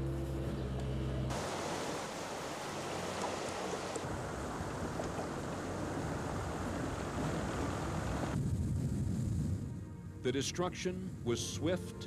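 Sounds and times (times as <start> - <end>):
floodwater rushing: 1.3 - 8.4.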